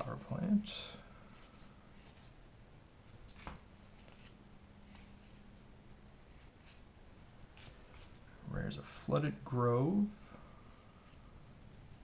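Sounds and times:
trading cards flipping: 3.3 - 5.4.

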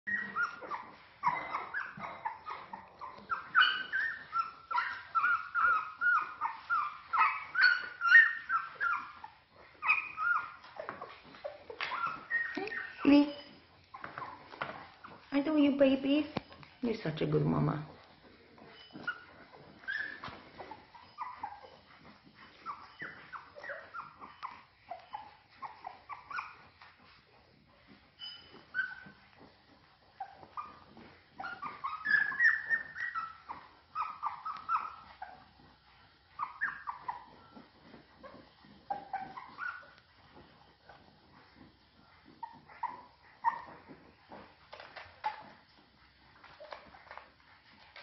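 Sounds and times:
puppies squeaking and whimpering: 0.1 - 48.0.

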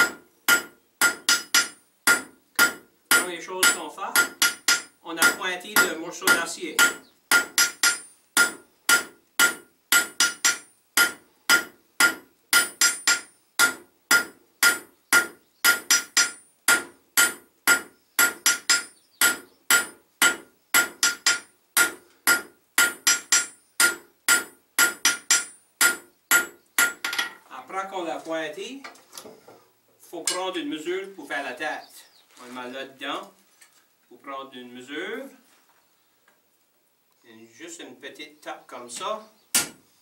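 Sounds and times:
hammer striking steel on anvil: 0.0 - 27.4, 39.6 - 39.8.

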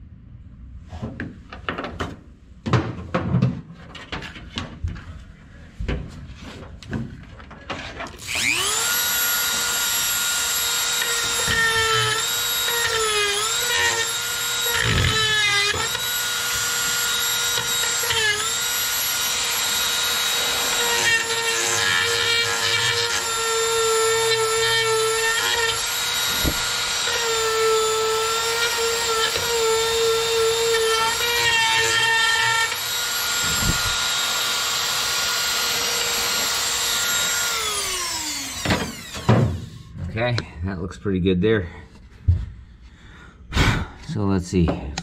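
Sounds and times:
rotary tool grinding whine: 8.0 - 39.9.

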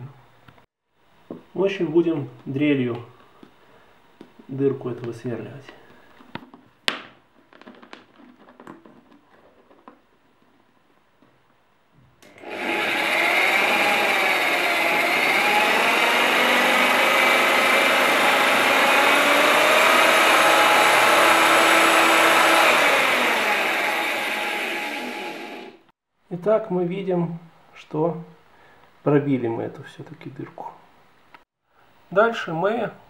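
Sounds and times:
electric drill whining: 12.2 - 25.9.

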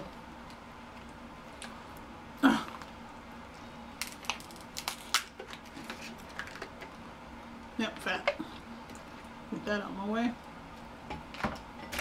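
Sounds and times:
crab shells cracking: 4.0 - 6.8.

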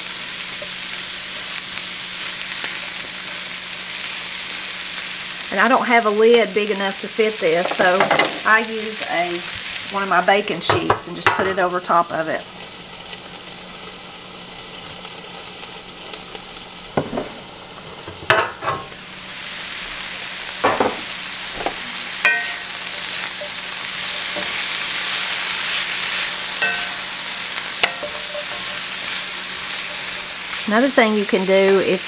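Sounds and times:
cabbage sizzling in a skillet: 0.0 - 32.0
sheet pan knocking: 20.6 - 21.8
wooden spoon knocking in a pan: 20.6 - 22.7.

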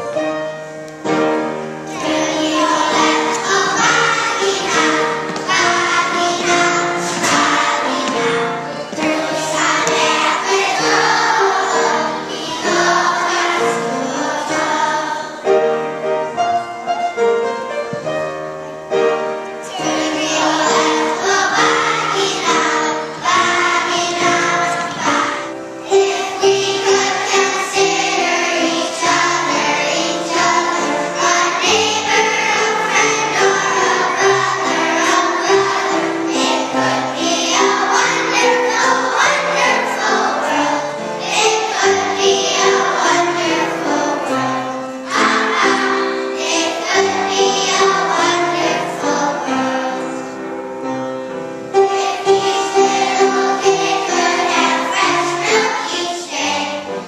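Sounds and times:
children singing together: 0.6 - 16.6, 19.2 - 57.0.

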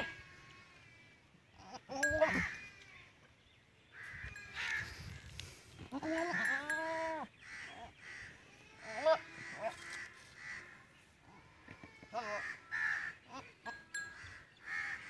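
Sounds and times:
goat bleating: 0.0 - 0.8, 1.6 - 2.9, 5.9 - 10.8, 11.6 - 14.0
crows cawing: 4.0 - 5.1, 7.4 - 10.9, 12.4 - 13.2, 14.1 - 15.0.

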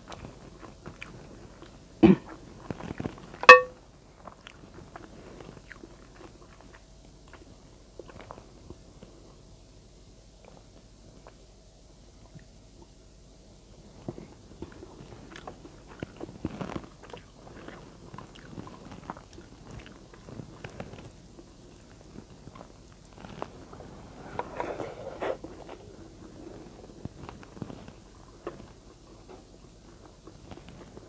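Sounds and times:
person chewing food: 16.8 - 20.0.

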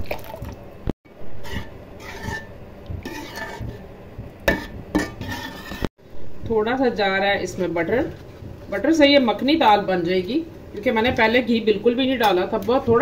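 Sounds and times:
metal spoon scraping pot: 1.3 - 5.9.

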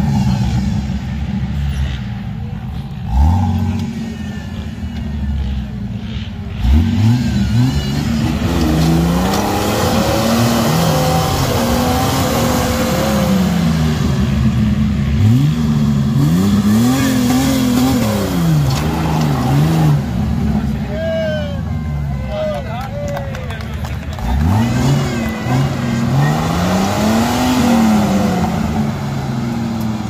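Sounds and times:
engine revving hard: 6.5 - 14.5, 15.1 - 20.4, 24.2 - 29.6.

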